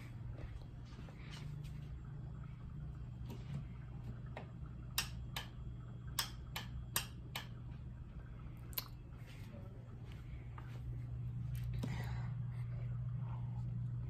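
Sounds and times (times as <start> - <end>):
light switch clicking: 5.0 - 5.6, 6.2 - 7.6.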